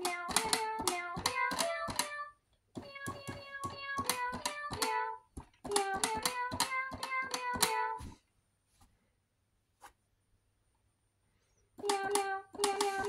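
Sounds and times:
toy keyboard electronic notes: 0.0 - 5.1, 5.7 - 8.0, 11.8 - 13.0.

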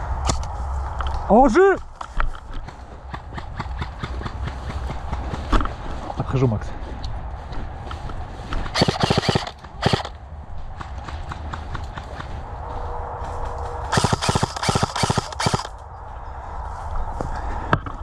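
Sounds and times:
airsoft gunfire bursts: 8.7 - 10.2, 13.9 - 15.7.

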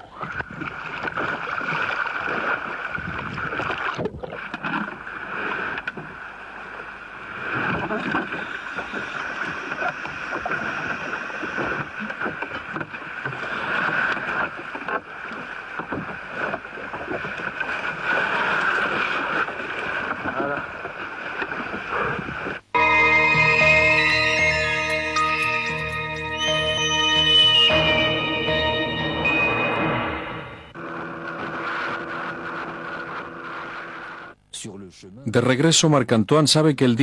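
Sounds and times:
water noise: 0.0 - 34.5
wind noise: 0.3 - 4.4
boat engine drone: 4.4 - 34.9.

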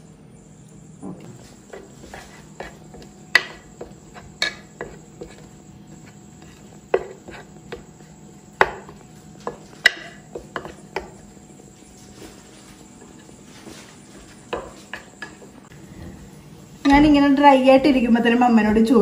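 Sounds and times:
spoon scraping a ceramic bowl: 1.7 - 7.6.

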